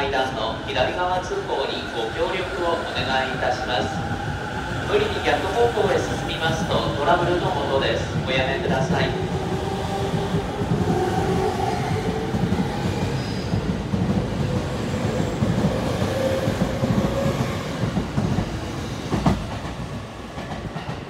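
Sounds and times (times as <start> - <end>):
train wheels rumbling over rail joints: 8.1 - 21.0.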